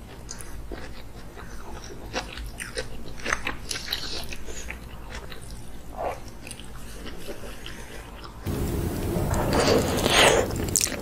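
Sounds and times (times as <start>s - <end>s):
chewing and wet mouth smacks: 0.0s - 8.4s.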